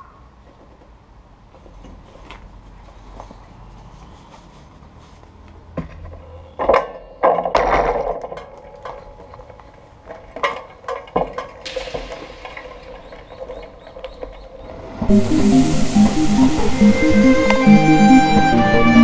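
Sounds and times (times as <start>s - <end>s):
hiss: 11.7s - 18.5s.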